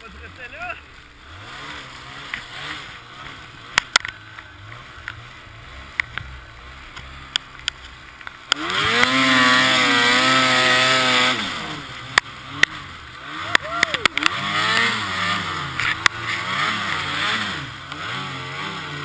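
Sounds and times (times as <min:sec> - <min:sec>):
snowmobile engine revving: 0:00.0 - 0:19.0
sharp clicks: 0:02.3 - 0:05.2.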